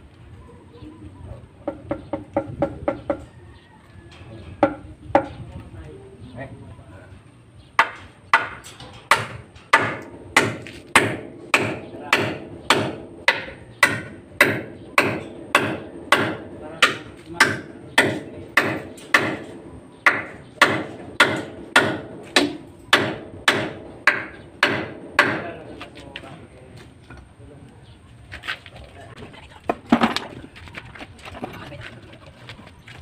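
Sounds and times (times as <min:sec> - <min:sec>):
hammer striking: 0:07.8 - 0:25.7.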